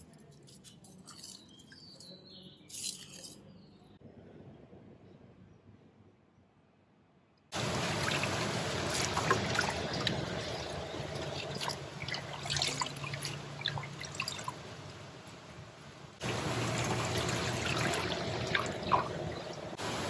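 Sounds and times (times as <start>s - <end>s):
water sloshing in metal bowl: 8.0s - 14.7s, 16.3s - 19.8s.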